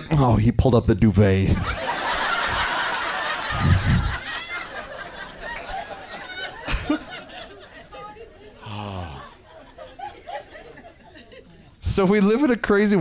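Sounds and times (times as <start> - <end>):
audience laughing: 1.6 - 11.8.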